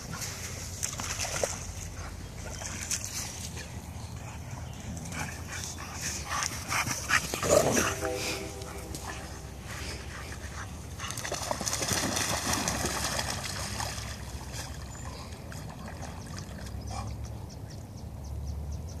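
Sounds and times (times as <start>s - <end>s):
dogs splashing in shallow water: 0.0s - 18.8s.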